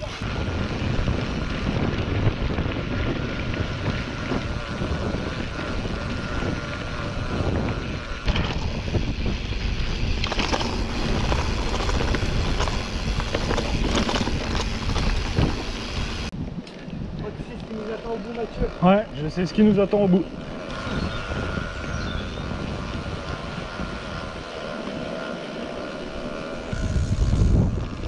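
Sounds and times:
bike clattering over bumps: 0:00.0 - 0:16.3
tyres rumbling on dirt: 0:00.0 - 0:16.4
wind buffeting microphone: 0:00.0 - 0:28.0.

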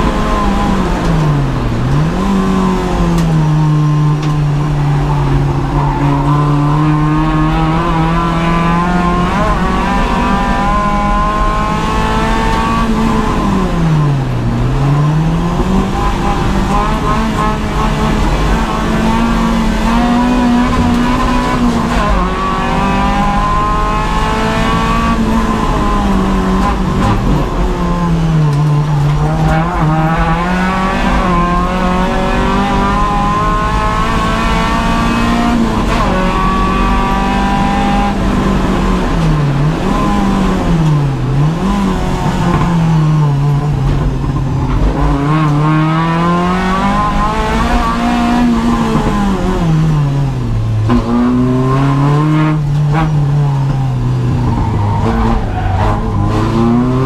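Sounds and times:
car engine revving: 0:00.0 - 0:57.0.

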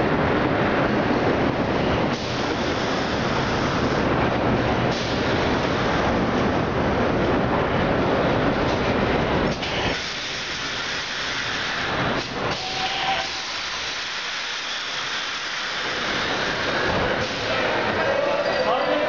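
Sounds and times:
subway train rumbling: 0:00.0 - 0:19.0
high hiss of air: 0:09.6 - 0:17.6.

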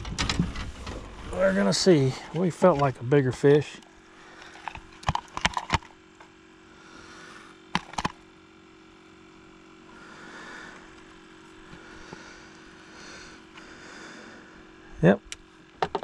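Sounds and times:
faint steady hum: 0:00.0 - 0:16.0
plastic taps and knocks: 0:15.8 - 0:16.0.

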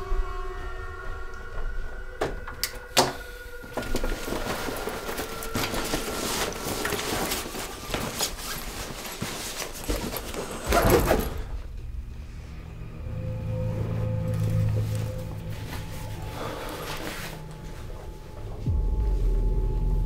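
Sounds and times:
low music tones: 0:00.0 - 0:20.0
rustling and scraping of handled things: 0:03.2 - 0:11.6, 0:13.4 - 0:18.7.

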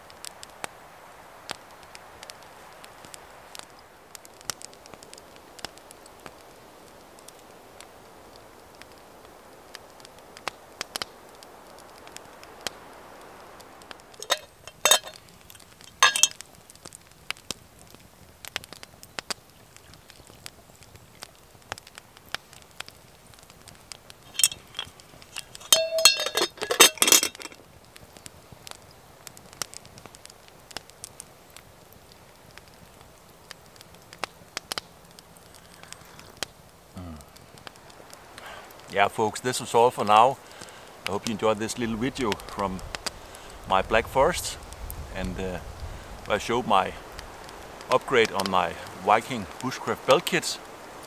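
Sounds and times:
campfire crackling and popping: 0:00.0 - 0:51.0
iron pot lid and handle clinking: 0:14.2 - 0:15.2, 0:15.9 - 0:16.3, 0:24.3 - 0:27.6.

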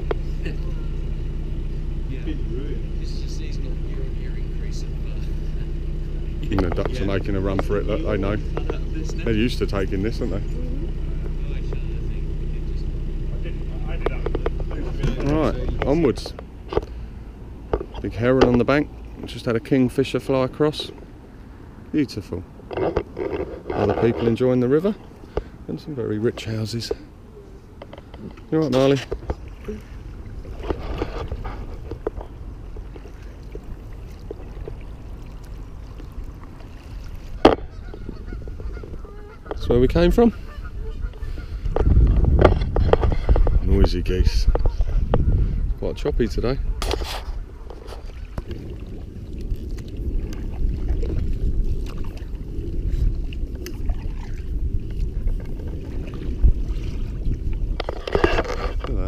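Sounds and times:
river water slapping canoe hull: 0:00.0 - 0:59.0
steady low rumble: 0:00.0 - 0:59.0
paddle splashing in water: 0:27.0 - 0:39.6, 0:46.7 - 0:58.9.

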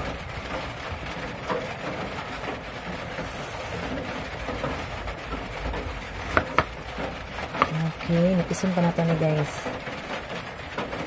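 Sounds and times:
steady background noise: 0:00.0 - 0:11.0
knife tapping cutting board: 0:06.4 - 0:06.7, 0:07.6 - 0:07.8.

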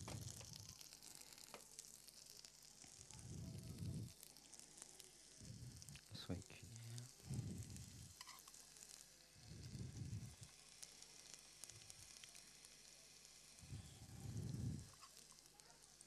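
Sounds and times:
food sizzling in a pan: 0:00.0 - 0:16.0
low muffled rumbles: 0:09.4 - 0:10.4.

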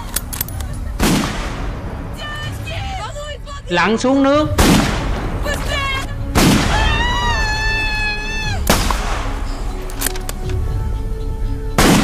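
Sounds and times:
rifle bolt clicks: 0:00.0 - 0:00.7, 0:09.8 - 0:10.6
film music: 0:00.0 - 0:12.0
rifle shots with echo: 0:01.0 - 0:02.1, 0:04.5 - 0:06.9, 0:08.7 - 0:09.6, 0:11.8 - 0:12.0.

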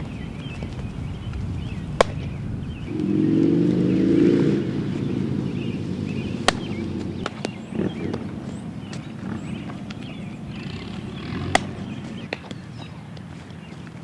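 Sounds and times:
birds chirping: 0:00.0 - 0:14.0
low droning hum: 0:01.2 - 0:12.3
baseball smacking into glove: 0:02.0 - 0:02.4, 0:06.4 - 0:08.2, 0:11.4 - 0:12.6.

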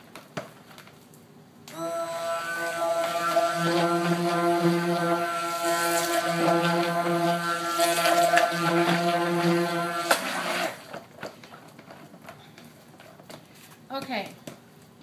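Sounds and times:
stick blender motor whining: 0:01.7 - 0:11.1.

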